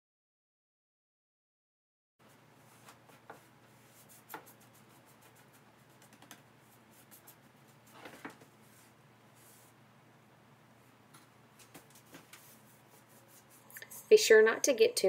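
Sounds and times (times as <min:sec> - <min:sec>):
low room hum: 0:02.2 - 0:15.0
paintbrush scraping on wood: 0:02.3 - 0:09.8, 0:11.6 - 0:14.2.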